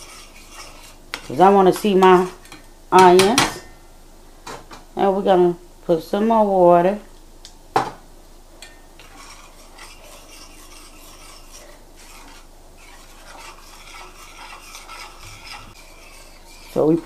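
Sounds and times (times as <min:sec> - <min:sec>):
spoon scraping skillet: 0:00.0 - 0:03.6, 0:08.6 - 0:17.0.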